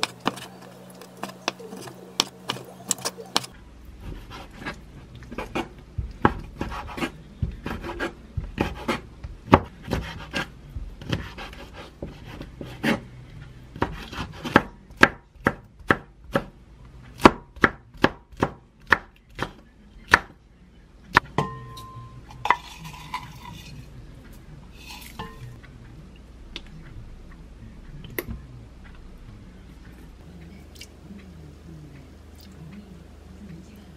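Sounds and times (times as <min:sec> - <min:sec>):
knife chopping on wooden board: 0:00.0 - 0:03.5, 0:04.1 - 0:13.0.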